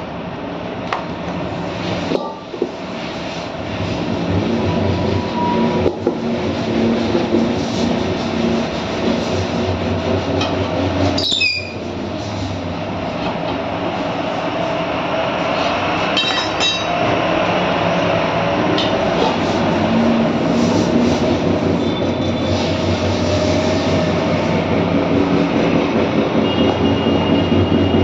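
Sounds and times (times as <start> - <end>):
tyre lever squeak: 11.2 - 11.8.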